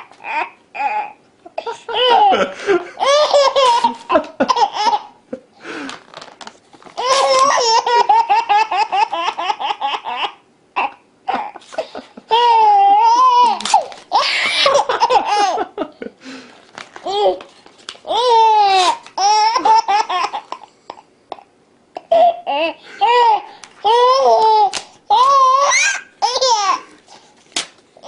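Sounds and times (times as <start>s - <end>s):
baby laughing: 0.0s - 5.2s, 7.0s - 15.8s, 17.0s - 17.4s, 18.1s - 27.0s
paper tearing: 13.5s - 14.1s.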